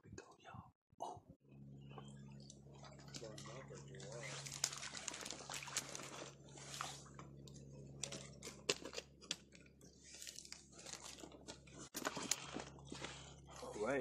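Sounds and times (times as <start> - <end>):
handling clicks and crunches: 7.2 - 13.3.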